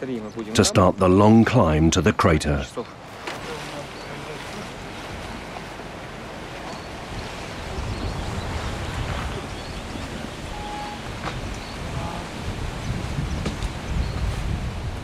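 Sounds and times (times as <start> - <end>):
wind buffeting microphone: 3.6 - 15.0.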